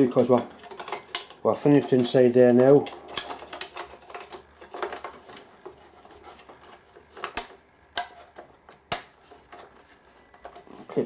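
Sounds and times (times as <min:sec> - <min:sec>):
plastic cover scraping and rattling: 0:00.0 - 0:11.0.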